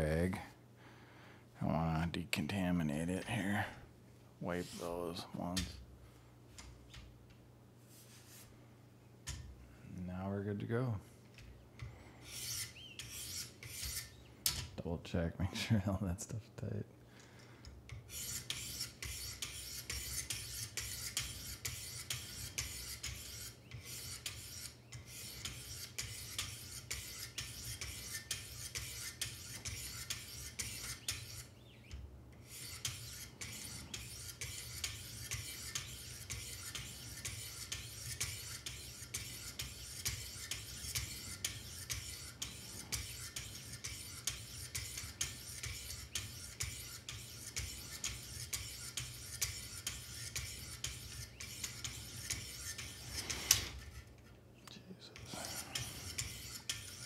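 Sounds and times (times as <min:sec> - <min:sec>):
sharpening stones scraping knife edge: 0:18.0 - 0:31.5, 0:32.4 - 0:54.2, 0:55.2 - 0:57.0.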